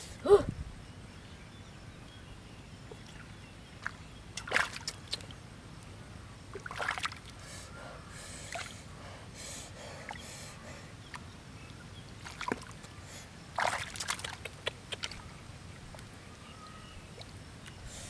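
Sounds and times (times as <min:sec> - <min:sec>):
hands splashing in muddy water: 0:03.8 - 0:05.2, 0:06.6 - 0:07.3, 0:13.6 - 0:15.2.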